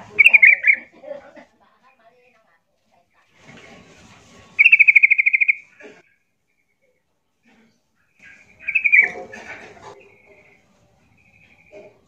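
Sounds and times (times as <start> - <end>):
bird chattering trill: 0.0 - 0.9, 4.6 - 6.2, 8.2 - 10.6.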